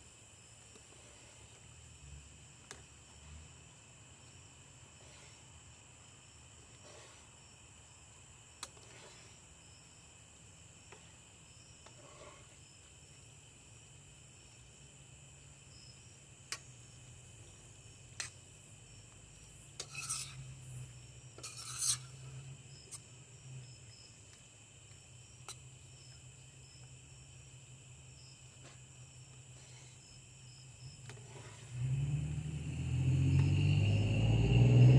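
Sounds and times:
crickets chirping: 0:00.0 - 0:34.9
metal spoon scraping frying pan: 0:19.8 - 0:20.6, 0:21.4 - 0:22.4.

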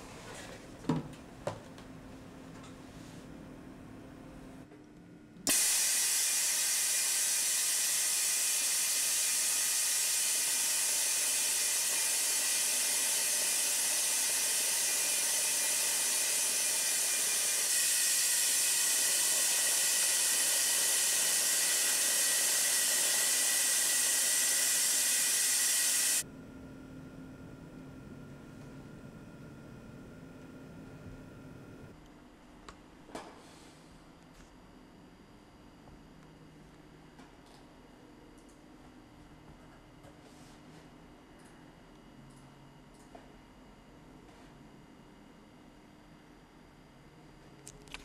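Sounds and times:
test rig hissing: 0:05.5 - 0:26.2.

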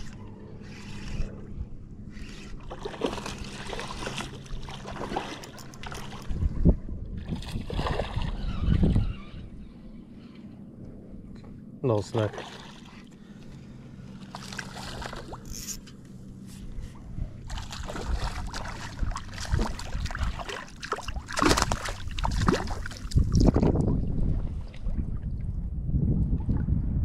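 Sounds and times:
water splashing: 0:02.6 - 0:06.2, 0:12.2 - 0:13.1, 0:14.2 - 0:15.5, 0:17.5 - 0:23.7.

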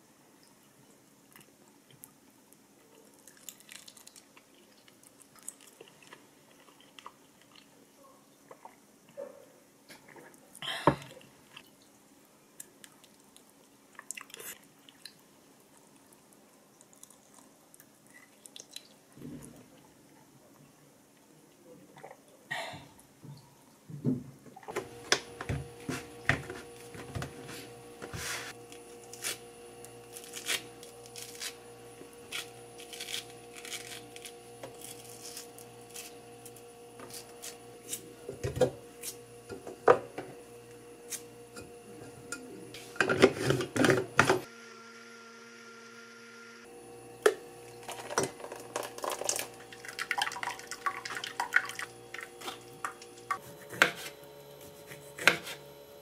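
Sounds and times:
juice trickling into bowl: 0:03.1 - 0:07.7, 0:13.0 - 0:19.0, 0:47.2 - 0:53.4.

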